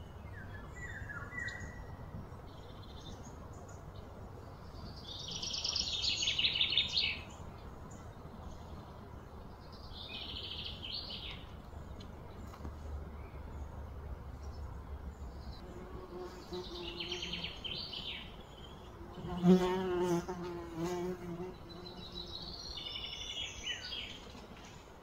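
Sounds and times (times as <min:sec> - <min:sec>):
birds chirping: 0:00.0 - 0:25.0
fly buzzing: 0:15.6 - 0:17.6, 0:19.0 - 0:22.4.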